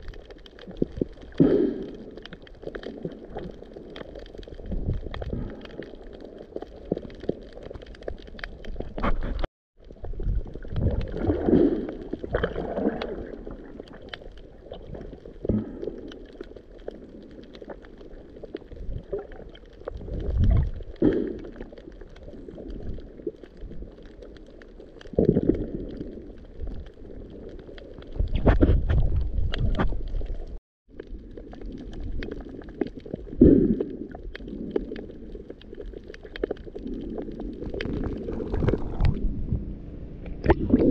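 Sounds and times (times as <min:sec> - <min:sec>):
crackle of tiny clicks underwater: 0:00.0 - 0:39.3, 0:40.2 - 0:40.9
muffled water surges: 0:06.3 - 0:40.9.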